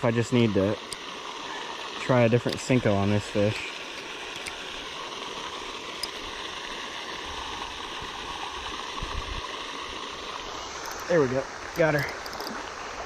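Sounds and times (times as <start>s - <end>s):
running water rushing: 0.0s - 13.0s.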